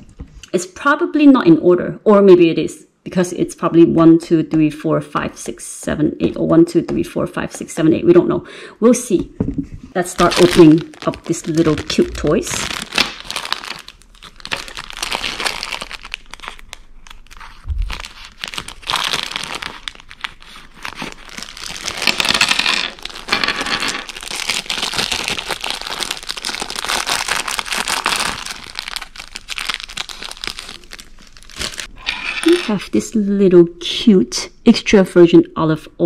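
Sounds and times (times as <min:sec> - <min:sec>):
plastic bags crinkling: 0:10.0 - 0:32.6.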